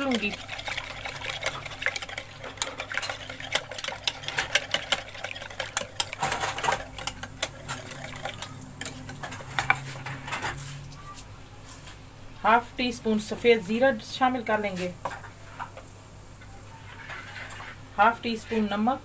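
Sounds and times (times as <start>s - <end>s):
whisk clicking against bowl: 0.0s - 9.8s.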